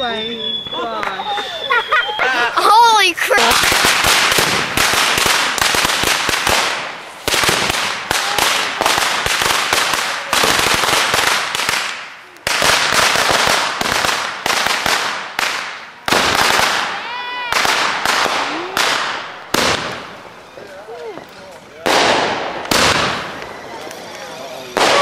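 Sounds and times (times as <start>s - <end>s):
firework whistle: 0.0s - 2.4s
firework cracks and pops: 3.3s - 25.0s.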